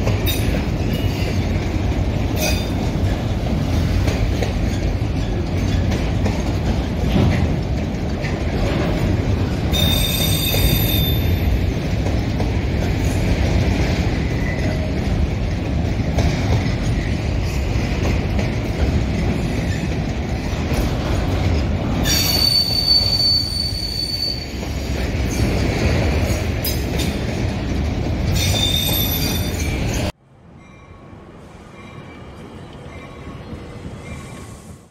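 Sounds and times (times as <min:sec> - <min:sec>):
train wheels rumbling on rail: 0:00.0 - 0:34.9
high-pitched wheel squeal: 0:09.7 - 0:11.4, 0:22.0 - 0:24.6.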